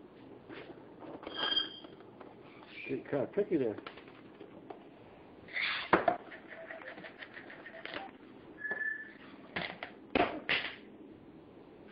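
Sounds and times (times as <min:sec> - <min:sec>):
brief high whistle: 0:08.6 - 0:09.2.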